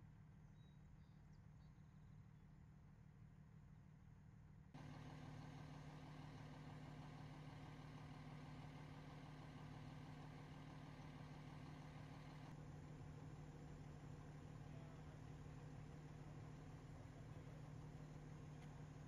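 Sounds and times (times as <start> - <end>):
fire engine idling: 4.8 - 19.0.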